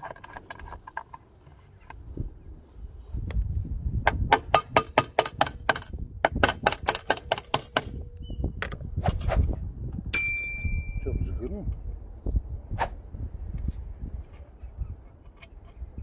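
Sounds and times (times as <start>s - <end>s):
ringing metallic ding: 10.1s - 11.3s.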